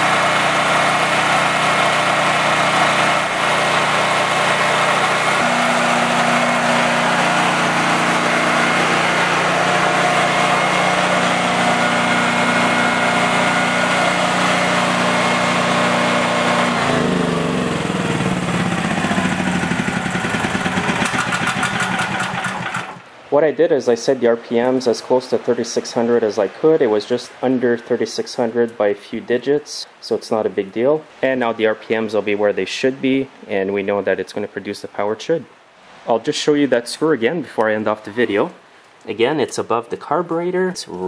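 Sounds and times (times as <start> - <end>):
generator engine running: 0.0 - 23.1.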